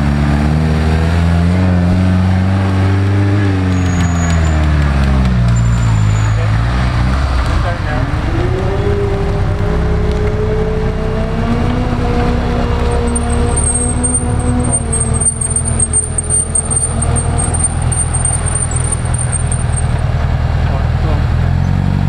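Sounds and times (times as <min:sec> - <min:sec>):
car engine running hard: 0:00.0 - 0:22.0.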